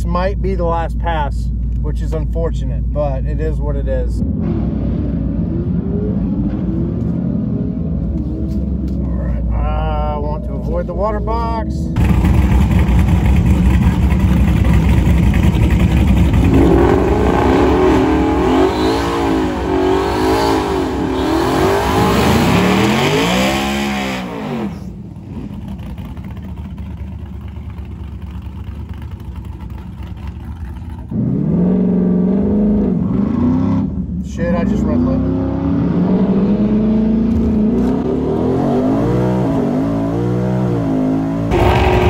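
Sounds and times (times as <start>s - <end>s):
car engine revving hard: 15.4s - 24.9s, 34.9s - 42.0s.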